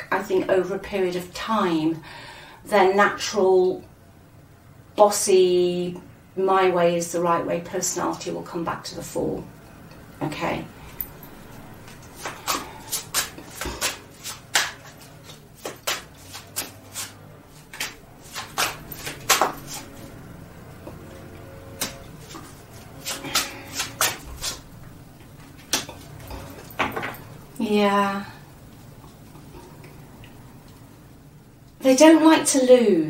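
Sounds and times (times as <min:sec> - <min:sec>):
cards being shuffled: 0:12.1 - 0:20.0, 0:21.8 - 0:24.6.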